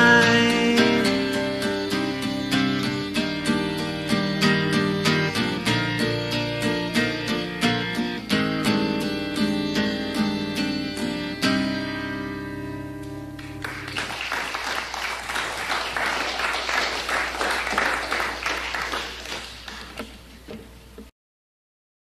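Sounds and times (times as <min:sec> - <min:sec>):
acoustic guitar chord ringing: 0:00.0 - 0:14.0
audience applause: 0:13.4 - 0:20.1.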